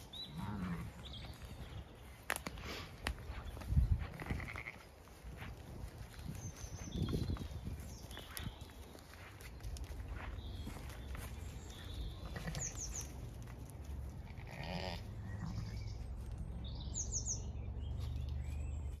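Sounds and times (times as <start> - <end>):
sheep bleating: 4.1 - 4.9, 12.2 - 12.9, 14.2 - 15.8
bird chirping: 6.0 - 13.2, 15.2 - 19.0.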